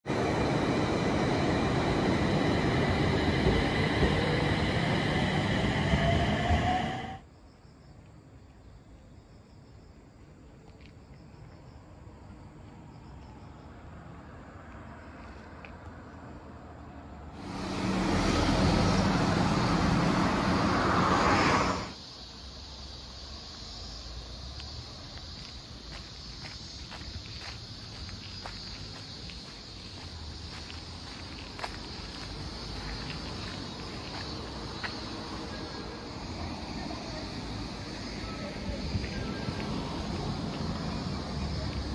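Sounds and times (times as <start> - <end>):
electric train running rumble: 0.0 - 7.2, 17.4 - 22.1, 24.8 - 41.9
high train whines: 0.0 - 7.3, 16.8 - 22.4, 24.8 - 41.9
quiet outdoor background: 0.0 - 41.9
vehicle passing close: 17.4 - 22.0.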